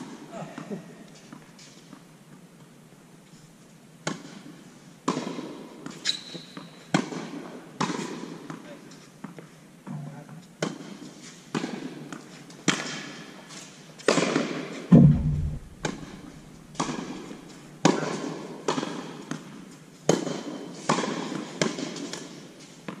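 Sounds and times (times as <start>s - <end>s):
tennis balls struck by racquets: 4.0s - 6.0s, 6.9s - 8.6s, 10.6s - 13.0s, 14.1s - 22.2s.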